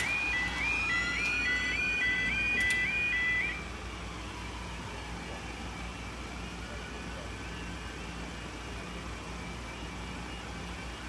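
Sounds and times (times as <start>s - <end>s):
two-tone yelping alarm: 0.0s - 3.6s.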